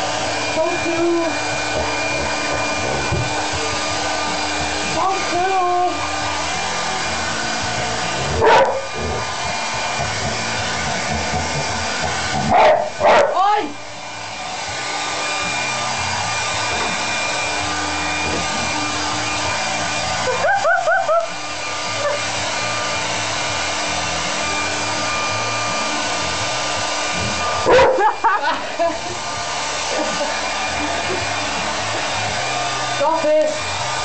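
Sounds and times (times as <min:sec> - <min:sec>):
hairdryer blowing: 0:00.0 - 0:34.0
dog barking: 0:08.4 - 0:08.9, 0:12.5 - 0:13.4, 0:27.7 - 0:28.1.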